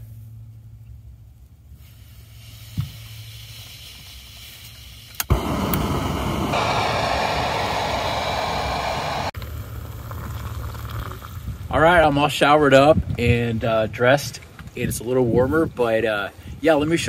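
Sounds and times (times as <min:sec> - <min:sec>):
stove burner hissing: 0:01.8 - 0:09.4
stove click: 0:05.2 - 0:06.3
burner igniting pop: 0:05.2 - 0:09.4.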